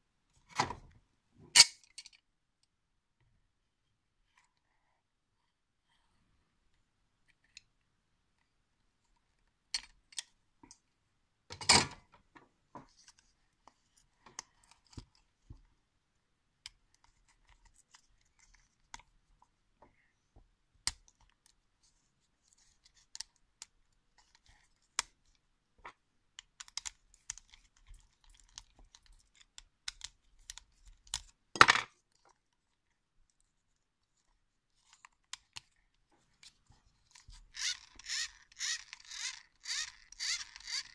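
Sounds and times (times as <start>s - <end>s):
plastic parts clicking: 26.4s - 32.4s, 36.4s - 40.9s.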